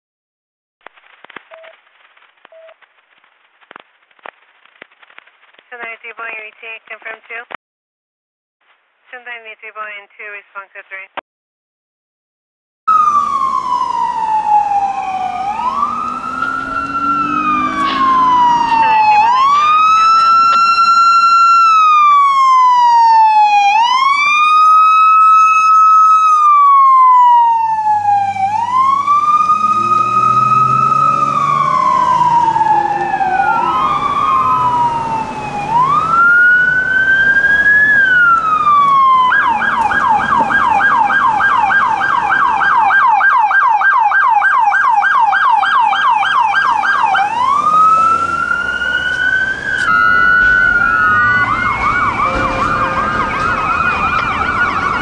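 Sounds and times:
police sirens wailing: 12.9s - 55.0s
siren fast yelp: 12.9s - 55.0s.

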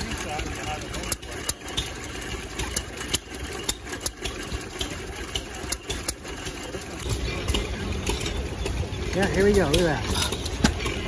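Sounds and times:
low engine running sound: 0.0s - 11.0s
stationary engine popping: 0.0s - 11.0s.

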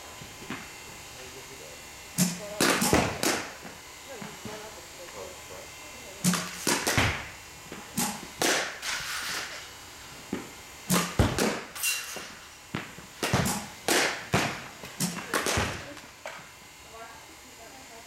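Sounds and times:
bats cracking balls: 2.1s - 5.2s, 6.2s - 9.6s, 10.3s - 16.5s.

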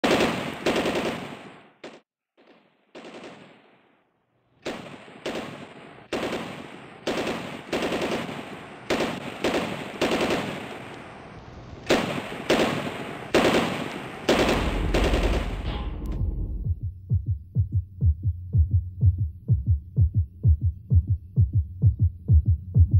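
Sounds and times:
fireworks bangs: 0.0s - 16.6s.

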